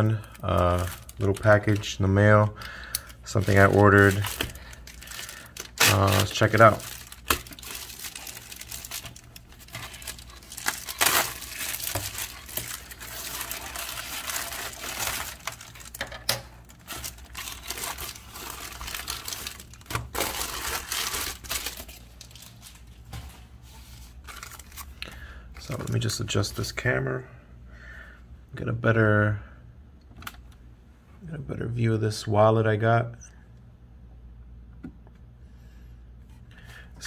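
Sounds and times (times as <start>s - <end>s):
plastic mailer crinkling: 0.0s - 23.2s, 23.9s - 26.1s
plastic wrapper crinkling: 0.0s - 23.2s, 23.9s - 26.1s.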